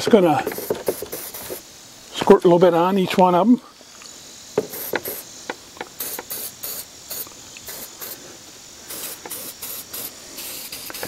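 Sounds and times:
aerosol can hissing squirts: 0:00.3 - 0:02.0, 0:03.9 - 0:11.0.

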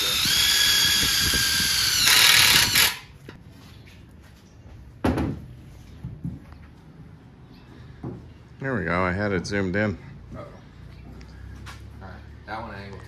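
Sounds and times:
cordless drill whining: 0:00.0 - 0:03.1.

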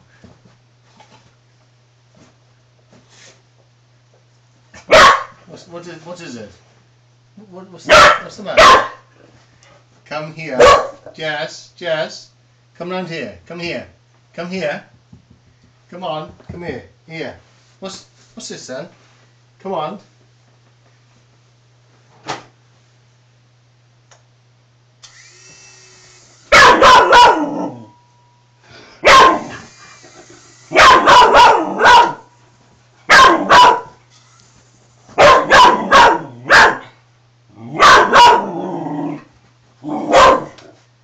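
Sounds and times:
dog barking: 0:04.8 - 0:05.4, 0:07.9 - 0:09.1, 0:10.6 - 0:11.0, 0:26.5 - 0:27.8, 0:29.0 - 0:29.6, 0:30.7 - 0:32.3, 0:33.1 - 0:34.0, 0:35.2 - 0:36.9, 0:37.8 - 0:38.5, 0:40.0 - 0:40.6.

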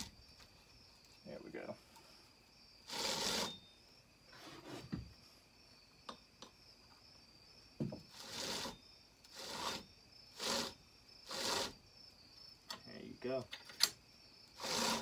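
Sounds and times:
saw chain rattling along bar: 0:03.0 - 0:03.6, 0:14.6 - 0:15.0
small clicks: 0:13.5 - 0:14.0.

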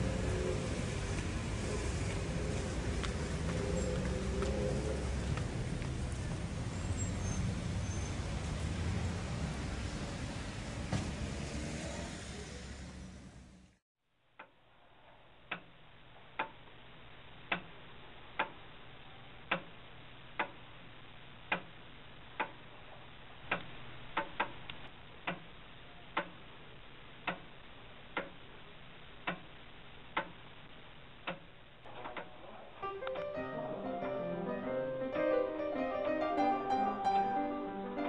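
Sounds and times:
low steady hiss: 0:00.0 - 0:38.0
mechanical clock ticking: 0:15.5 - 0:15.8, 0:17.5 - 0:17.8, 0:19.4 - 0:19.8, 0:20.4 - 0:20.6, 0:21.5 - 0:21.8, 0:23.4 - 0:25.5, 0:26.1 - 0:26.4, 0:27.2 - 0:27.5, 0:28.1 - 0:28.4, 0:29.2 - 0:29.5, 0:31.2 - 0:31.6.

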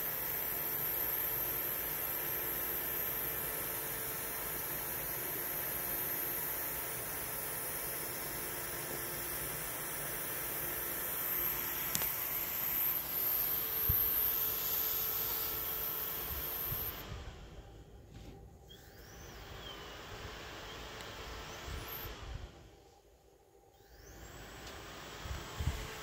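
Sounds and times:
high-pitched transformer whine: 0:00.0 - 0:26.0
steady hiss: 0:00.0 - 0:26.0
faint click: 0:24.6 - 0:24.8.

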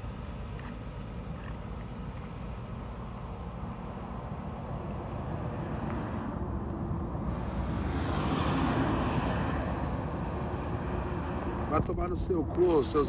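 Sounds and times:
heavy vehicle passing: 0:05.4 - 0:13.0
steady low rumble: 0:09.6 - 0:13.0.

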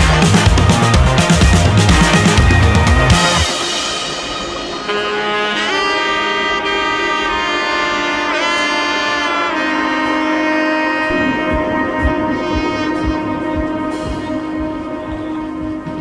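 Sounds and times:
steady low drum beat: 0:00.0 - 0:05.7, 0:11.0 - 0:16.0
sliding lead line with held chords: 0:00.0 - 0:16.0.

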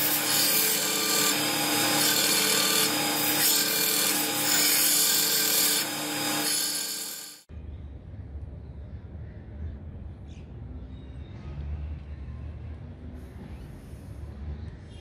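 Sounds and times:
belt sander grinding steel: 0:00.0 - 0:07.5.

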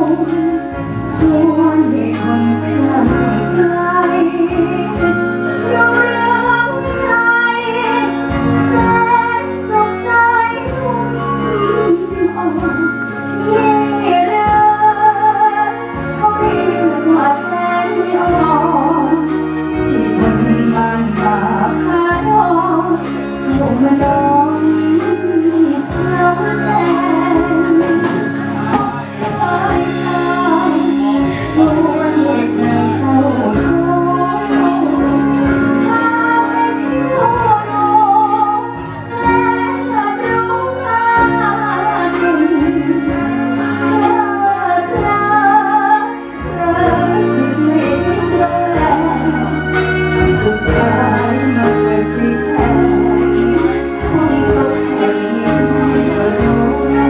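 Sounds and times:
amplified backing music: 0:00.0 - 0:57.0
woman singing into microphone: 0:00.0 - 0:57.0.

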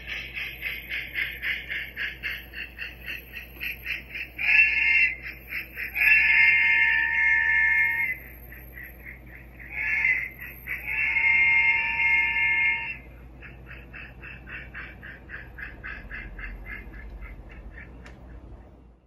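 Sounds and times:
steam exhaust chuffing: 0:00.0 - 0:18.8
steam locomotive chime whistle: 0:04.2 - 0:09.0, 0:09.7 - 0:13.1.

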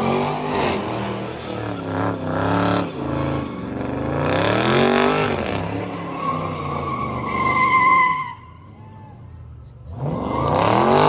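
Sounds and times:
car engine revving: 0:00.0 - 0:07.5, 0:09.8 - 0:11.0
tyres squealing: 0:05.8 - 0:08.6.

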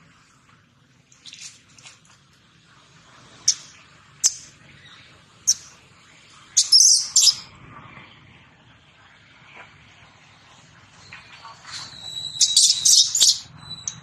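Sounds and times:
baby monkey squeaks: 0:06.6 - 0:07.4, 0:11.8 - 0:14.0
baby monkey squealing cry: 0:12.0 - 0:14.0.

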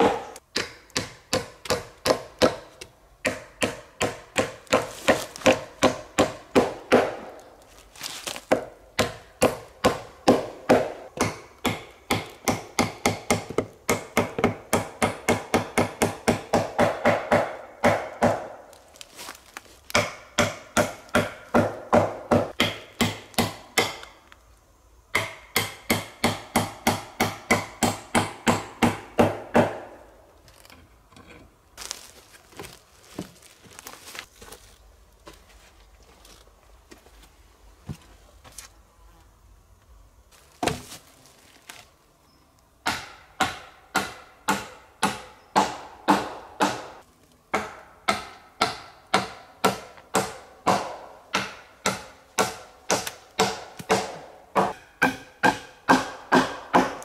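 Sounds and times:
hammering on wood: 0:00.0 - 0:07.4, 0:08.5 - 0:18.6, 0:19.9 - 0:24.1, 0:25.1 - 0:30.0, 0:42.8 - 0:57.0.

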